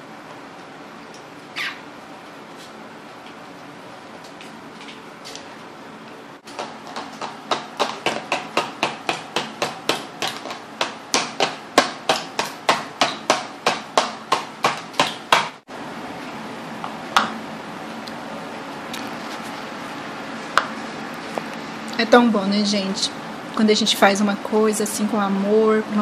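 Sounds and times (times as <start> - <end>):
sharp hammer-like knocks: 6.6 - 15.6.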